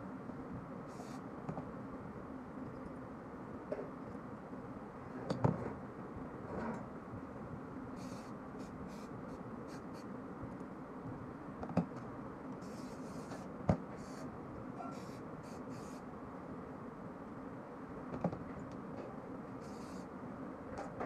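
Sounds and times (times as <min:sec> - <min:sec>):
cloth wiping steel parts: 0:08.0 - 0:10.1.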